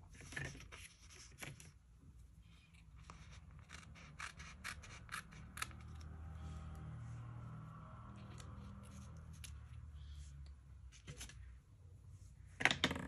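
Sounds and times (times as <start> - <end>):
paper scratching and rubbing: 0.1 - 1.8, 3.0 - 5.8.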